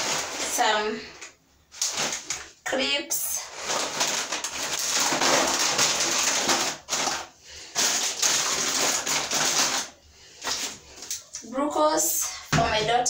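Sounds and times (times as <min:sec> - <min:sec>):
plastic bag crinkling: 0:00.0 - 0:11.3.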